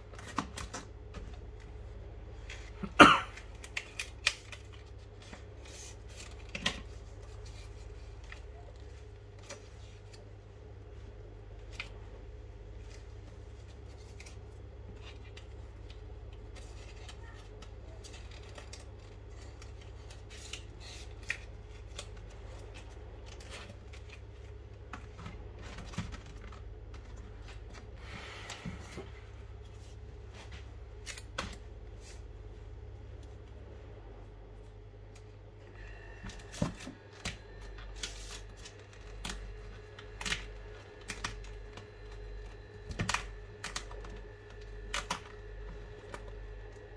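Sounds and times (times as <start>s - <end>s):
low background hum: 0.0s - 46.9s
paper rustling: 3.4s - 12.0s, 12.7s - 29.0s, 36.4s - 46.4s.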